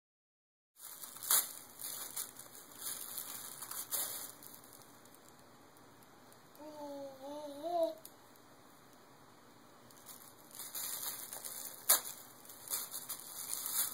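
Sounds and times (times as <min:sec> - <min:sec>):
paper crinkling and rustling: 0:00.8 - 0:05.1, 0:10.0 - 0:13.9.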